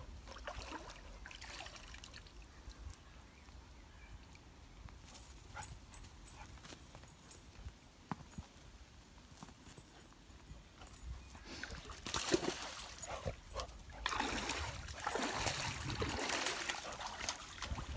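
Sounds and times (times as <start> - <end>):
dog splashing in water: 11.6 - 17.9.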